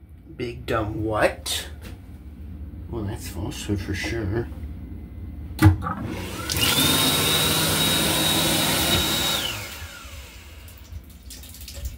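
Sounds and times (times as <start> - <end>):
hand dryer blowing: 6.0 - 10.9.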